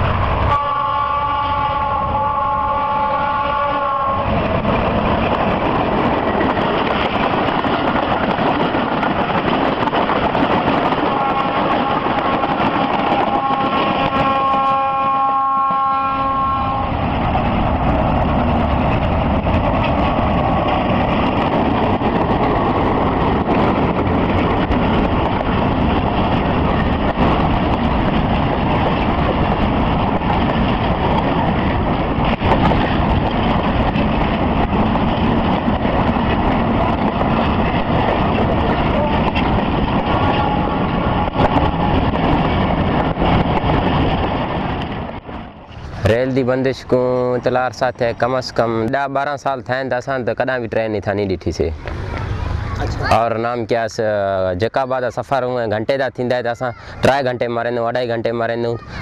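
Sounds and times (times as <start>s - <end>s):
train rumbling on rails: 0.0s - 59.0s
train horn: 0.4s - 4.4s, 11.0s - 17.1s.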